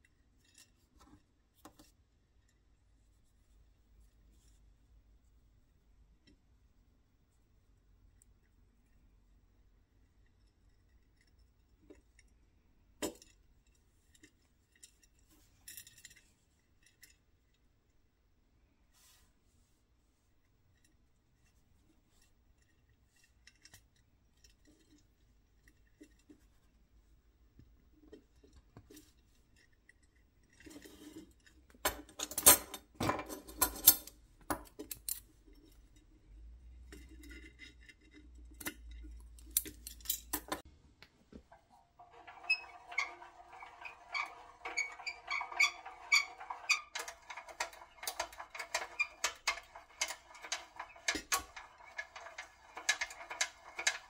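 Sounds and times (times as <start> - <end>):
small metal clicks and clinks: 28.4 - 36.1, 36.8 - 40.7.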